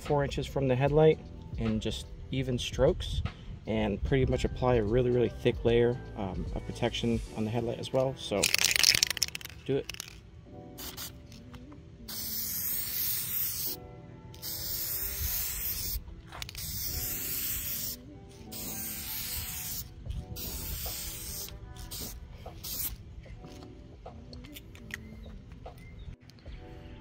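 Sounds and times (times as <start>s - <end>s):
spray can hissing: 8.4s - 10.2s, 10.8s - 11.4s, 12.1s - 13.8s, 14.4s - 23.0s.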